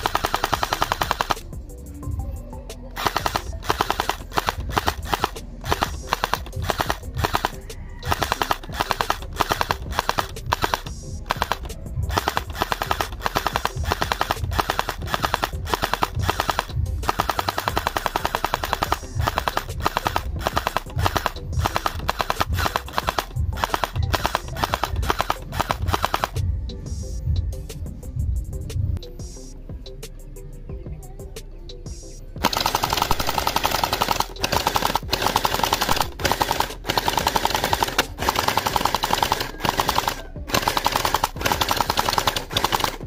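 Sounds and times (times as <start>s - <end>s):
toy rifle firing bursts: 0.0s - 1.6s, 3.0s - 26.4s, 32.4s - 43.0s.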